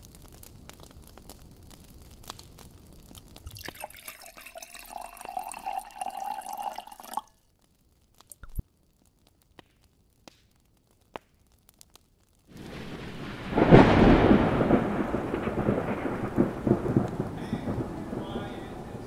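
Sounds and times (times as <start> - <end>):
rain: 0.0 - 19.0
thunder rumble: 12.5 - 19.0.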